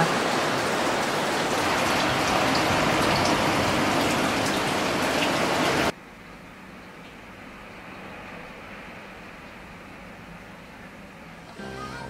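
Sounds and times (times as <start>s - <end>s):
water rushing: 0.0s - 5.9s.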